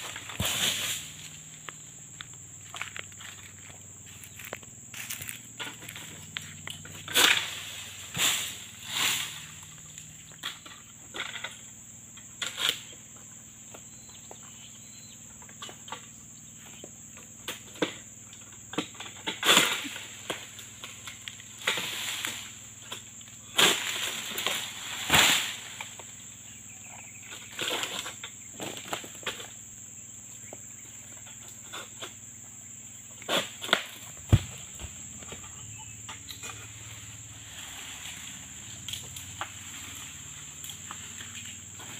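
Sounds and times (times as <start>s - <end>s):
sickle cutting and scraping stalks: 0.0s - 1.7s, 2.7s - 11.6s, 18.8s - 26.1s, 33.2s - 41.9s
fronds rustling: 0.0s - 10.5s, 36.3s - 41.9s.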